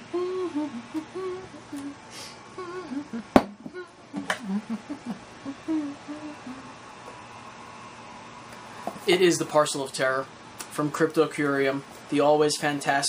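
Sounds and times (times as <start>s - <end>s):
man humming: 0.0s - 7.0s.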